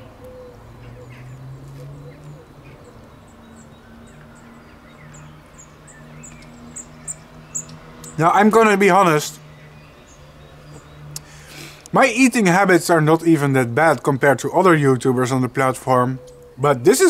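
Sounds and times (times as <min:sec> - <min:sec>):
small bird chirping: 0:00.0 - 0:08.4, 0:09.0 - 0:11.5.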